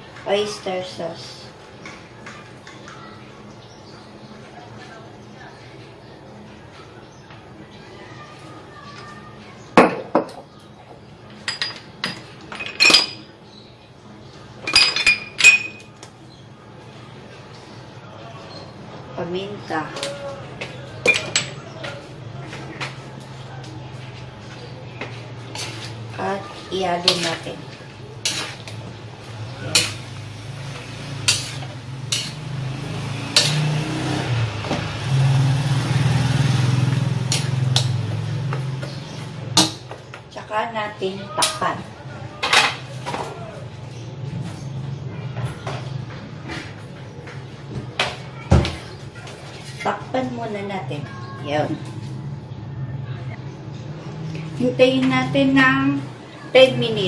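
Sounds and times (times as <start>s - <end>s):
kitchenware clinking: 11.3s - 13.3s, 14.6s - 16.0s, 19.9s - 22.0s, 25.5s - 34.8s, 37.2s - 38.0s, 39.6s - 40.0s
metal spatula scraping a wok: 25.4s - 26.1s, 27.0s - 33.9s.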